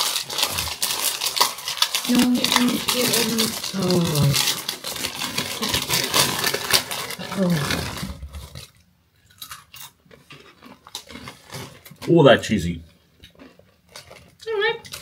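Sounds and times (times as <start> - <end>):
snack crunching: 0.0 - 12.2, 12.9 - 15.0
plastic packet crinkling: 0.0 - 15.0
person grunting: 2.1 - 4.5, 7.2 - 8.2.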